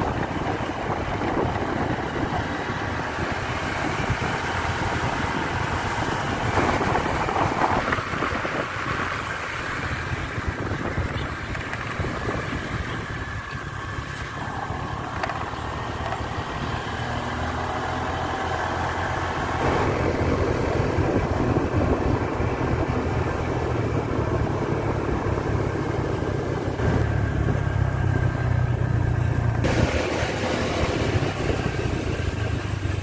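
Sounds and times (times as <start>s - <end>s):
motorcycle engine running: 0.0s - 33.0s.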